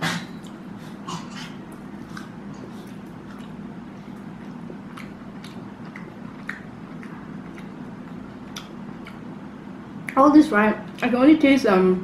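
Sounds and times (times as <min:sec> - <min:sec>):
low background hum: 0:00.0 - 0:12.0
person chewing dried fruit: 0:00.3 - 0:10.2
wet mouth clicks: 0:04.5 - 0:09.3.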